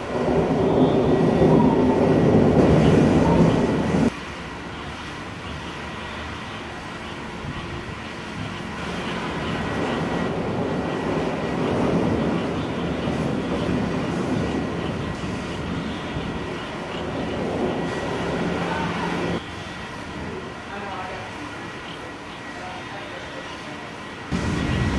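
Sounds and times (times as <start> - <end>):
distant thunder rumbling: 0.0 - 4.1, 8.8 - 19.4, 24.3 - 24.9.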